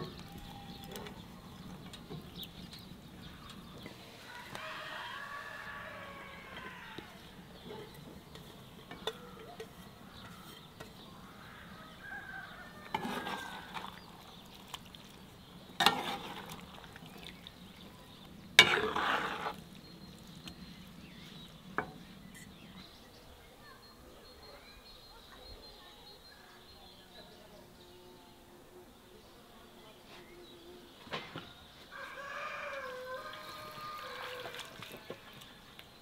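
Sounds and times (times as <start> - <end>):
metal skimmer scraping pan: 12.9 - 14.1, 15.8 - 17.1, 18.5 - 20.6.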